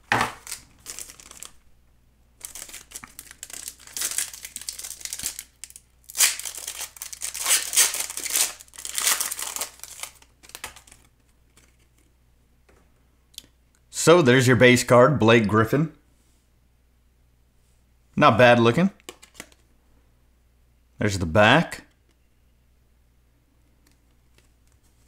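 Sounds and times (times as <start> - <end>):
foil wrapper crinkling: 0.3 - 1.6, 2.4 - 12.0.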